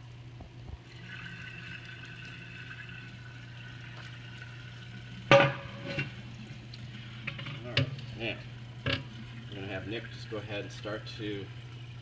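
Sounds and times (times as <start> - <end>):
liquid pouring into metal bucket: 0.8 - 12.0.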